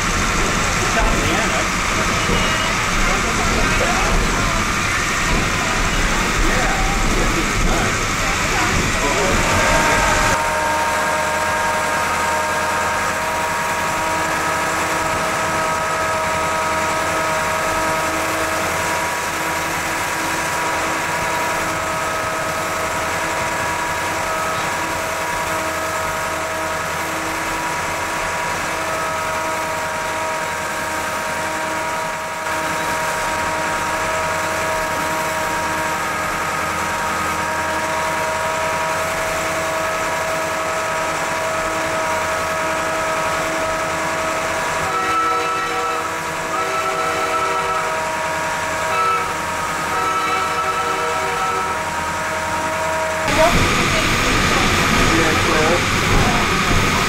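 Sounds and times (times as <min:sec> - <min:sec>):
engine hum: 0:51.7 - 0:57.0.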